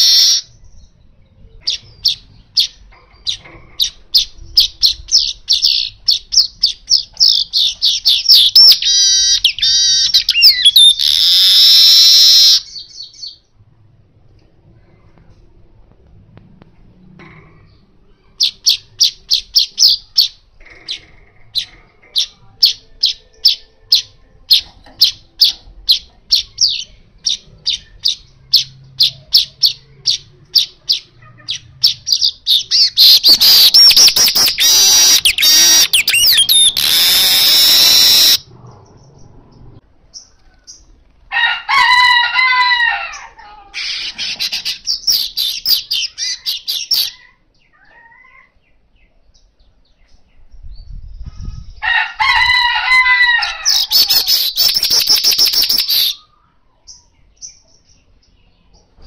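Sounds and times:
bird singing chips and buzzy trill: 32.3 - 38.4, 53.8 - 56.3.

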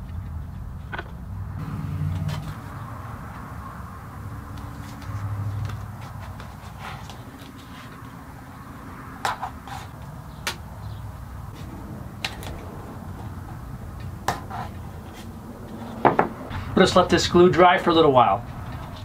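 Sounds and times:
low steady hum: 0.0 - 19.0
wood tapping on wood: 16.0 - 16.4.

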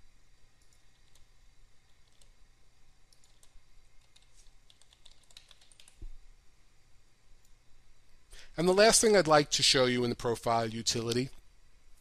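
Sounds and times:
faint keyboard typing: 0.6 - 2.4, 3.1 - 6.2.

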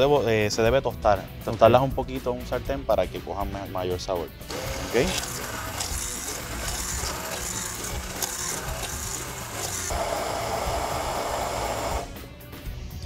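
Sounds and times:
stick blender running: 4.5 - 12.3.

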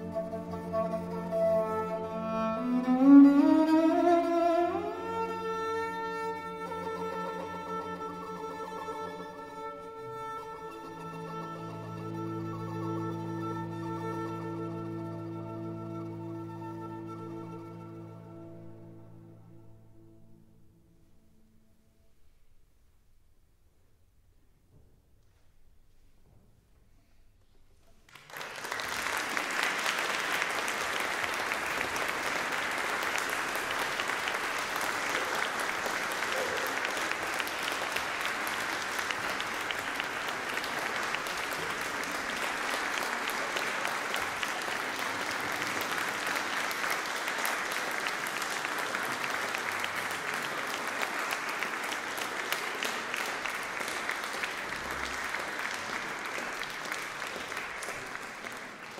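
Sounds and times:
audience applauding: 28.0 - 58.9.

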